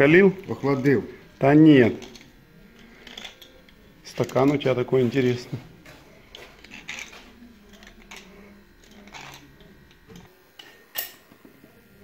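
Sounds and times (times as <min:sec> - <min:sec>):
lathe humming: 0:00.0 - 0:12.0.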